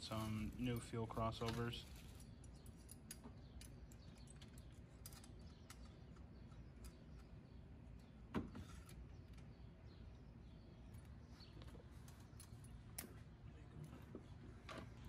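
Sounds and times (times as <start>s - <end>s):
small tools clicking and clinking: 0.1s - 7.3s.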